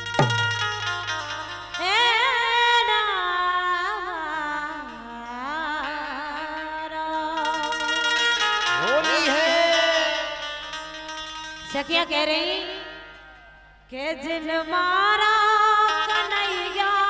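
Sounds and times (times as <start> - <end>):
harmonium chords: 0.0 - 17.0
woman singing folk song: 1.8 - 7.9, 11.7 - 13.3, 13.9 - 17.0.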